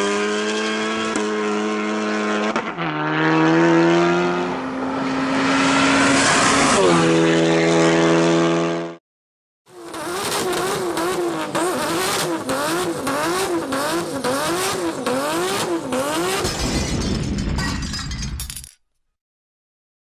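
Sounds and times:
car engine at full throttle: 0.0 - 9.0, 9.7 - 16.5.

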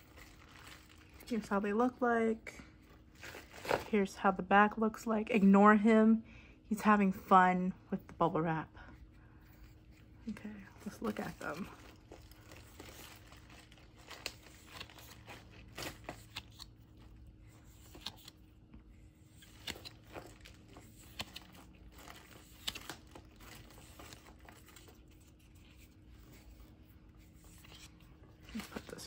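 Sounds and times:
plastic crinkling and crackling: 0.0 - 1.5, 9.7 - 18.7, 19.3 - 29.0.

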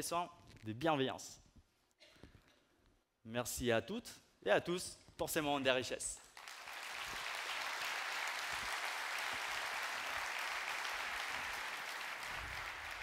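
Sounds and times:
large audience applauding: 6.4 - 13.0.

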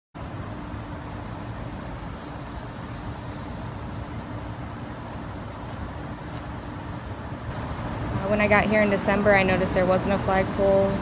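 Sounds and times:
constant low hum: 0.2 - 11.0
low rumble: 7.0 - 11.0.

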